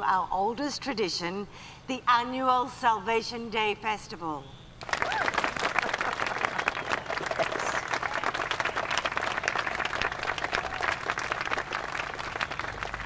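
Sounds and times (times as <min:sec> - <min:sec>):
crowd applauding: 0:04.8 - 0:13.0.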